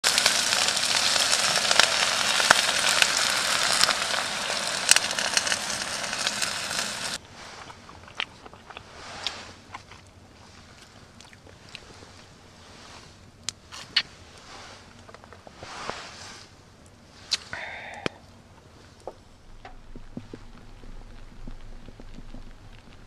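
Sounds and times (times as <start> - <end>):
onions and shrimp sizzling: 0.0 - 7.2
faint clicks and crackles: 0.0 - 16.1, 16.8 - 23.0.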